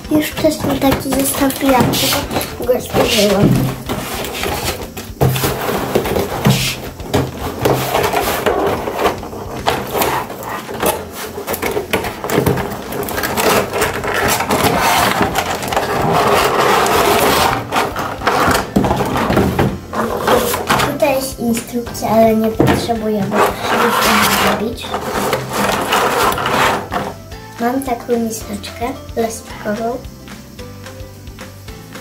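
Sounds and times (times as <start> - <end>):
cardboard rustling and scraping: 0.0 - 27.3
plastic knocks and clicks: 0.1 - 21.0.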